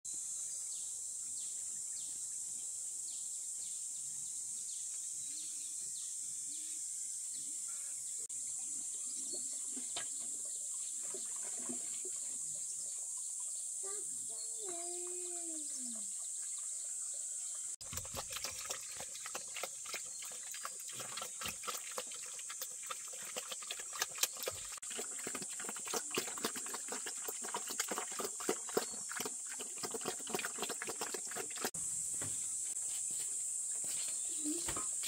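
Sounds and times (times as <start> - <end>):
pigs slurping and chomping: 17.8 - 31.8.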